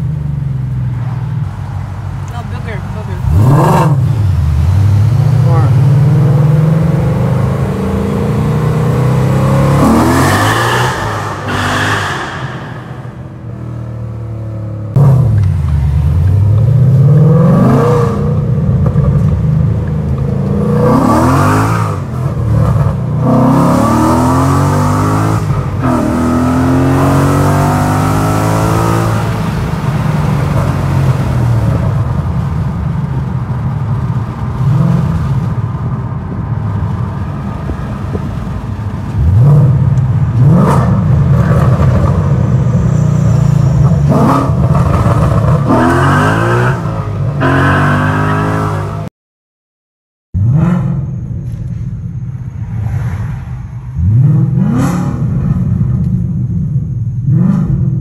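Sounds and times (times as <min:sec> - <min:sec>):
car engine revving while driving: 0:03.1 - 0:11.9, 0:14.5 - 0:32.7, 0:34.2 - 0:35.5, 0:39.1 - 0:49.1, 0:50.4 - 0:51.3, 0:54.0 - 0:56.1, 0:57.2 - 0:58.0.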